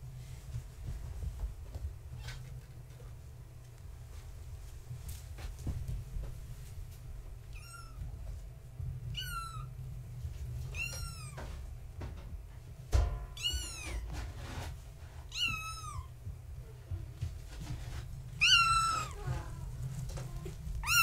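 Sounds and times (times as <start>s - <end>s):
kittens meowing: 7.5s - 8.1s, 9.1s - 9.8s, 10.7s - 11.5s, 13.4s - 14.1s, 15.3s - 16.2s, 18.4s - 19.7s, 20.4s - 21.0s.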